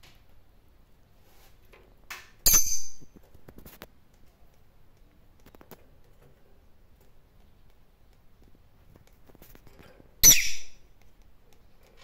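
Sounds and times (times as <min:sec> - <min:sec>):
metallic clink on wire cage bars: 0:02.4 - 0:03.2.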